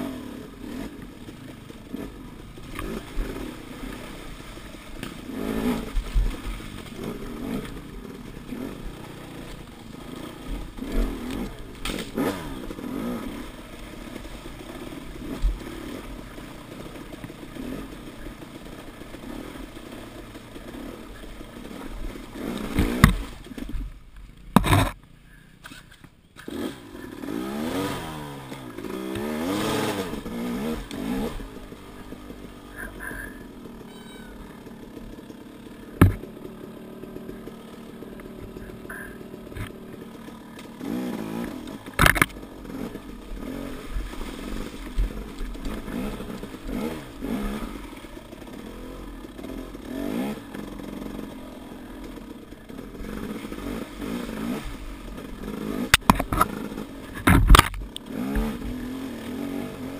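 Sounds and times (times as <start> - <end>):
dirt bike engine revving: 0.0 - 59.9
sharp knocks: 36.0 - 36.3.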